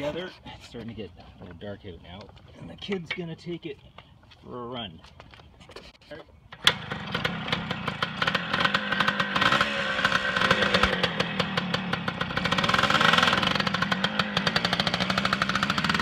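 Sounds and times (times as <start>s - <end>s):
two-stroke dirt bike engine: 6.5s - 16.0s.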